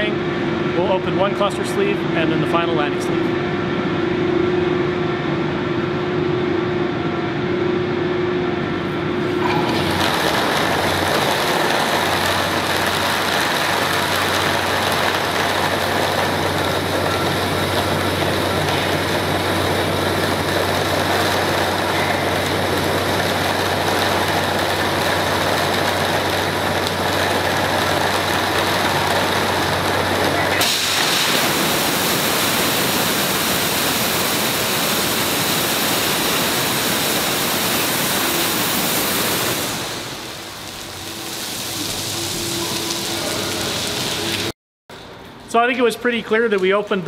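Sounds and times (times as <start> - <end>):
pump humming: 7.4 - 45.3
water rushing hiss: 9.4 - 44.5.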